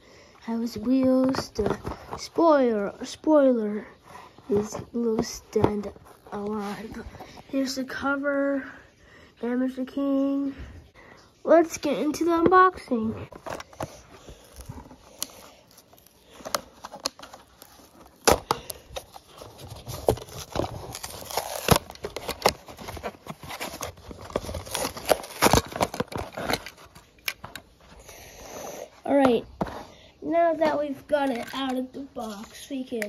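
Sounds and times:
cardboard card pulled apart: 13.3 - 27.6
plastic blister pack crackling: 13.3 - 27.8.

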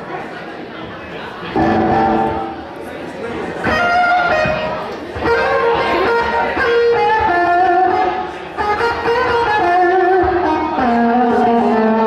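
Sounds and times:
electric guitar bending notes: 1.6 - 2.7, 3.6 - 12.0.

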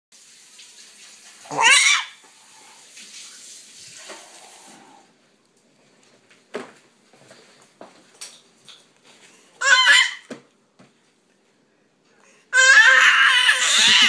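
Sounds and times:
baby squealing: 1.5 - 2.2, 9.6 - 10.3, 12.6 - 14.0.

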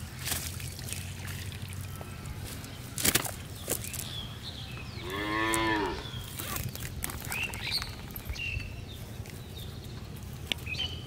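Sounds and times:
cow mooing: 5.0 - 6.1.

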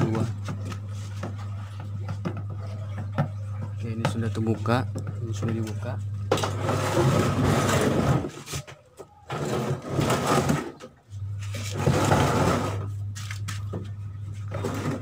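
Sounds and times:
steady low hum: 0.0 - 15.0
plastic cover scraping and rattling: 6.3 - 8.7, 9.3 - 10.9, 11.5 - 13.4.

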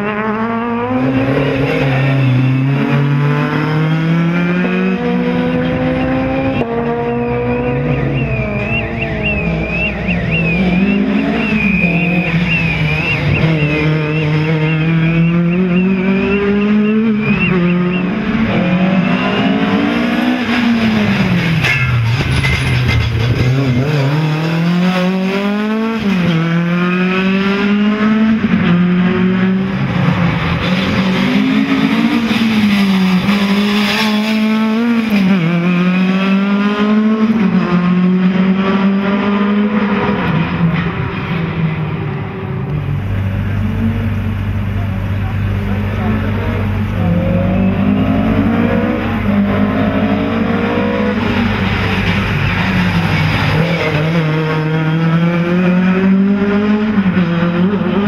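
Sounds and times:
rally car engine revving: 0.0 - 58.0
high wavering squeal: 7.4 - 18.2.

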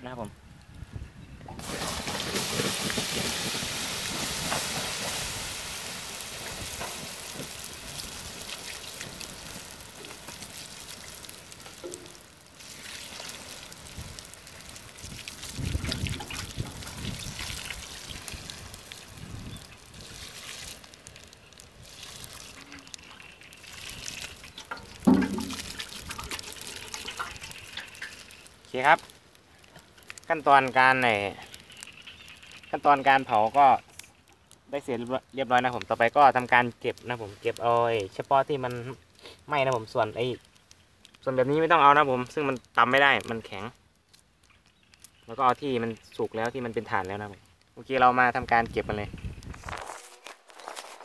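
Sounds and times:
water hissing on hot charcoal: 0.0 - 51.0
sharp knock: 25.1 - 25.6.

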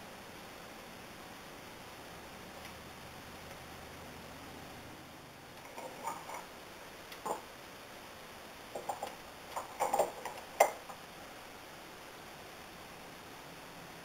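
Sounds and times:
wool combs tapping: 7.1 - 7.5, 8.8 - 11.0.

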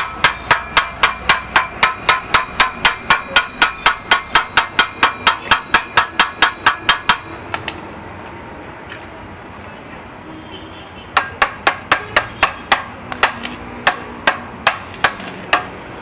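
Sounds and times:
steel tool tapping exhaust pipe: 0.0 - 7.9, 11.2 - 15.8.

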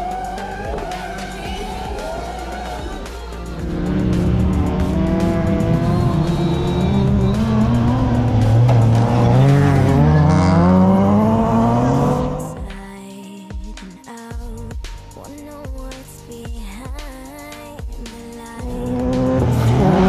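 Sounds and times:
race car engines revving: 0.0 - 12.6, 18.6 - 20.0
background music: 0.0 - 20.0.

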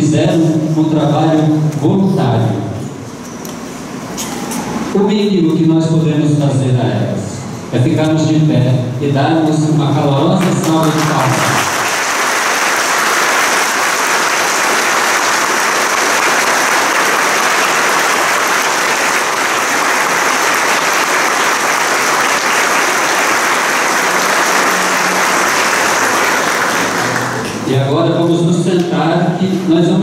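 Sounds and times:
congregation applauding: 10.3 - 27.7.

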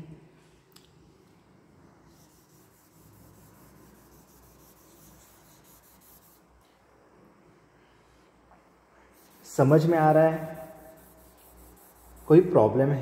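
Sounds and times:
cotton wool rubbing on paper: 2.1 - 6.4, 9.2 - 12.6.

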